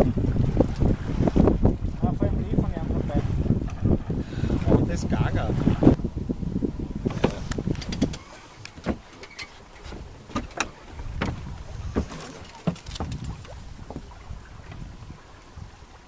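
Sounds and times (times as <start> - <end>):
wind noise: 0.0 - 9.1, 9.8 - 16.0
water: 0.0 - 16.0
sailboat rigging clinking: 7.0 - 14.0.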